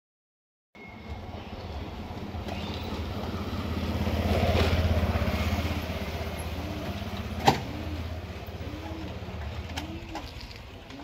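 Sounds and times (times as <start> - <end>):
tractor diesel engine revving: 2.0 - 10.2.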